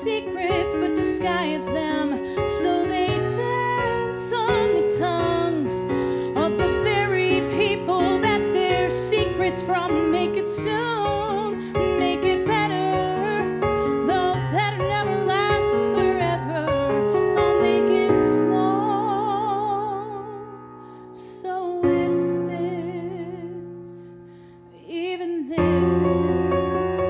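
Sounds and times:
piano accompaniment: 0.0 - 27.0
woman singing a ballad: 0.0 - 27.0.

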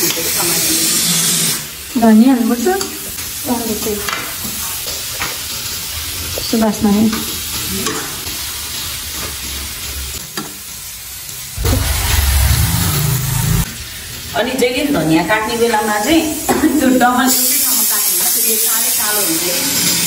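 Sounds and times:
curry sizzling: 0.0 - 20.0
low rumble: 11.6 - 14.3.

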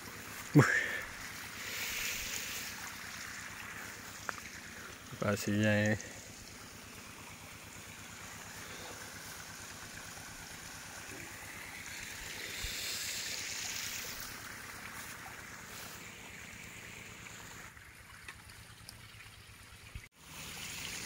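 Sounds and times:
river water hissing: 0.0 - 21.0.

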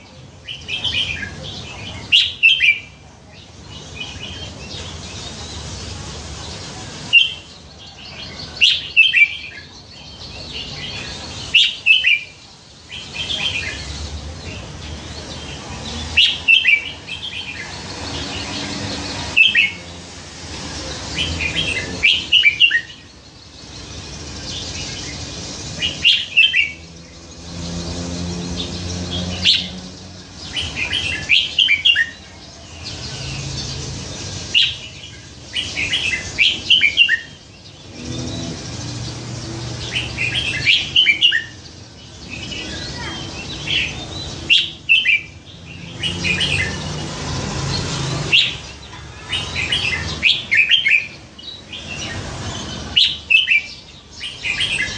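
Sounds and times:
bulbul singing whistled notes: 21.0 - 27.8, 32.8 - 46.8.

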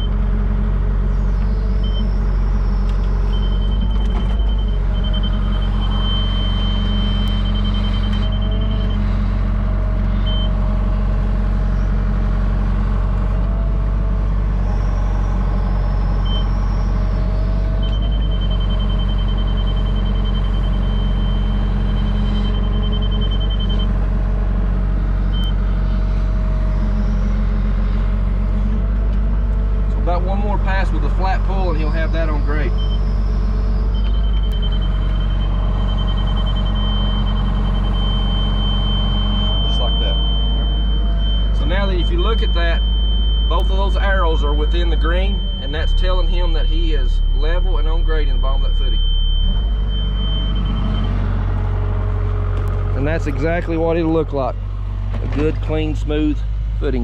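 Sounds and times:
excavator diesel engine running: 0.0 - 57.0
rapid high beeps: 31.7 - 51.4.

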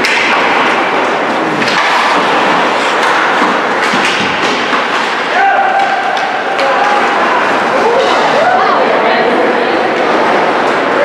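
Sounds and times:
skates on ice: 0.0 - 8.2
hockey sticks and puck clacking: 0.0 - 8.4.

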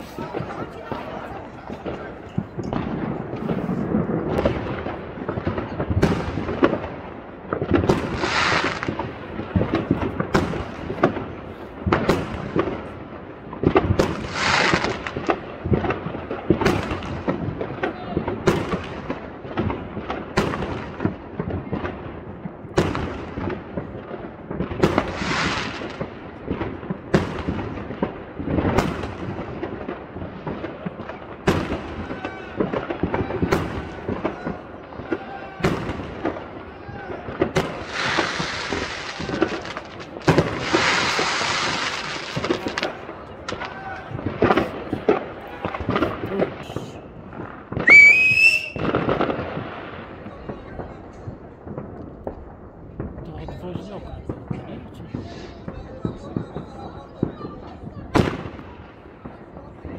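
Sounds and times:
rumbling echo: 0.0 - 8.2
fireworks bangs: 0.0 - 59.9
hissing crackle of fireworks: 0.0 - 59.9.

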